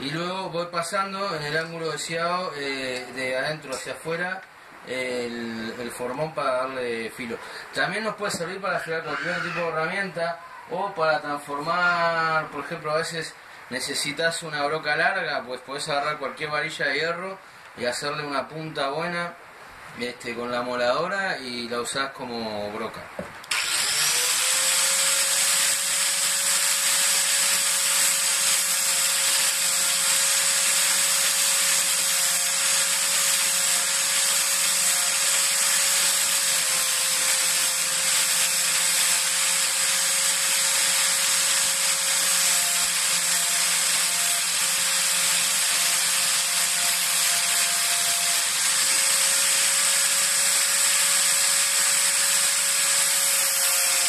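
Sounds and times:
angle grinder whining: 0:08.3 - 0:10.9, 0:23.4 - 0:54.0.

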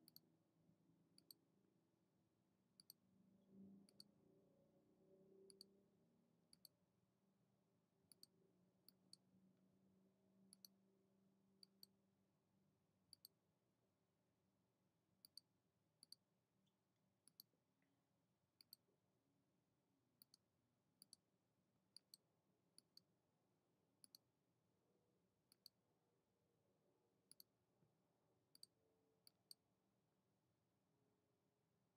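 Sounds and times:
computer mouse clicks: 0:00.0 - 0:00.2, 0:01.2 - 0:01.4, 0:02.8 - 0:03.0, 0:03.8 - 0:04.1, 0:05.5 - 0:05.7, 0:06.5 - 0:06.8, 0:08.1 - 0:09.2, 0:10.5 - 0:10.8, 0:11.6 - 0:11.9, 0:13.1 - 0:13.4, 0:15.2 - 0:15.4, 0:16.0 - 0:16.2, 0:17.2 - 0:17.5, 0:18.6 - 0:18.8, 0:20.2 - 0:20.4, 0:22.0 - 0:22.2, 0:22.8 - 0:23.1, 0:24.0 - 0:24.2, 0:25.5 - 0:25.8, 0:27.3 - 0:27.5, 0:28.5 - 0:29.6
faint low hum: 0:02.7 - 0:06.8.

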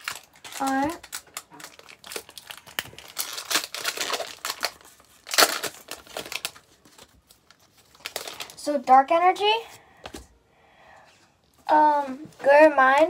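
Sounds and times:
foil wrapper tearing and crinkling: 0:00.0 - 0:08.7.

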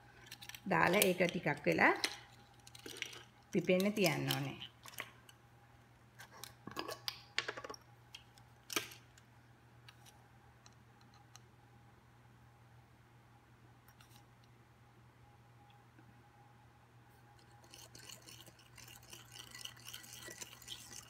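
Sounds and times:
plastic measuring spoons rattling: 0:00.2 - 0:05.1.

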